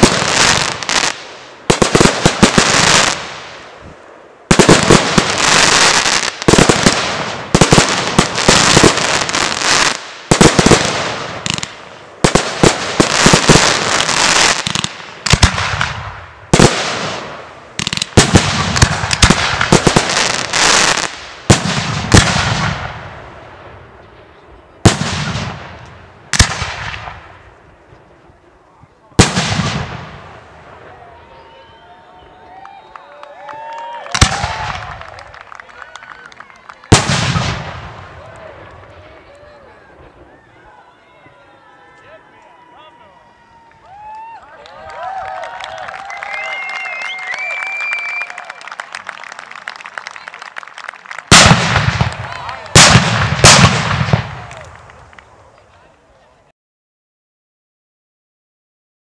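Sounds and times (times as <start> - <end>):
fireworks bursting: 0.0 - 31.7, 34.1 - 35.5, 36.6 - 40.8, 46.9 - 55.9
fireworks crackling: 0.0 - 42.6, 43.2 - 56.4.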